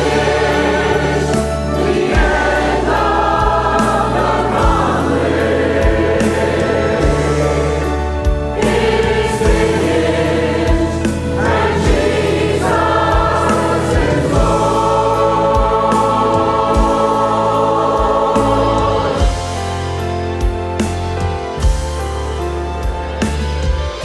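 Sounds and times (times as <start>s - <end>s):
choir singing gospel song: 0.0s - 20.5s
bass drum beat: 0.0s - 22.1s
band playing: 0.0s - 24.0s.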